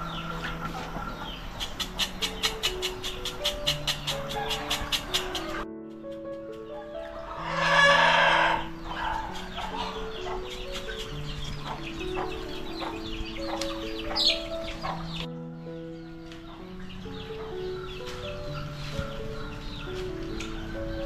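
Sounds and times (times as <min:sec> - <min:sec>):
hens clucking: 0:00.0 - 0:15.3
background music of held notes: 0:00.0 - 0:21.0
rooster crowing: 0:07.3 - 0:10.0.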